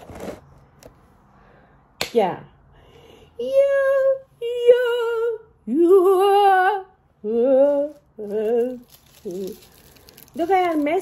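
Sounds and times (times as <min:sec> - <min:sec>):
woman singing unaccompanied: 0:03.4 - 0:09.6.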